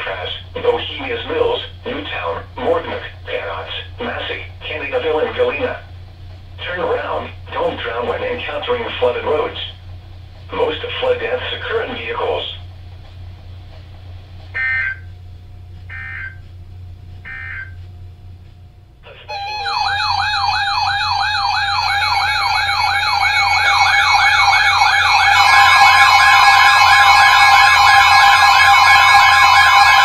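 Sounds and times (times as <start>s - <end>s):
warbling siren alarm: 14.6s - 15.1s, 15.9s - 16.4s, 17.3s - 17.8s, 19.3s - 30.0s
steady beeping tones: 17.2s - 17.8s, 19.3s - 30.0s.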